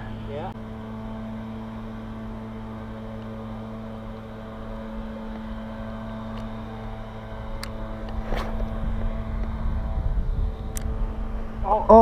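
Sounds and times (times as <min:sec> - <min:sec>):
machine hum: 0:00.0 - 0:12.0
fishing rod and reel rustle: 0:01.8 - 0:11.6.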